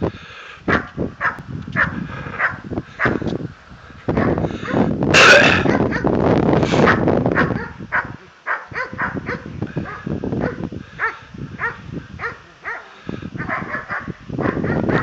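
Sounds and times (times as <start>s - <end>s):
dog yelping barks: 0.7s - 3.2s, 5.4s - 6.1s, 6.8s - 15.0s
rushing noise: 4.9s - 5.7s.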